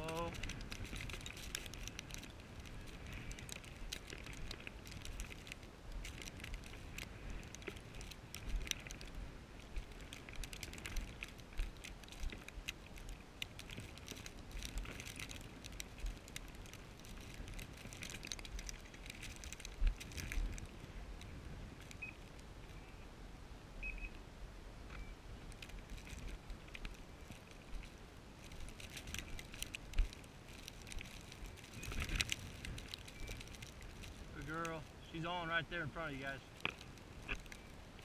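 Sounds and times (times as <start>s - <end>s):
wind rumble on microphone: 0.0s - 38.0s.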